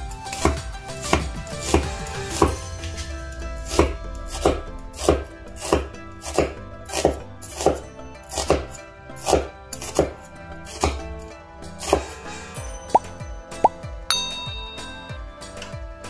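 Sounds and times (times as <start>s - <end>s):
cleaver chopping onion on board: 0.3s - 2.6s, 3.8s - 11.0s.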